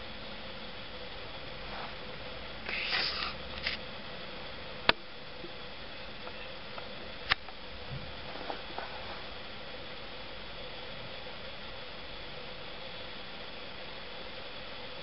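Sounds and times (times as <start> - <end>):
faint hum: 0.0 - 15.0
steady hiss: 0.0 - 15.0
scratchy rustle: 1.7 - 2.0, 2.7 - 3.8, 8.2 - 9.3.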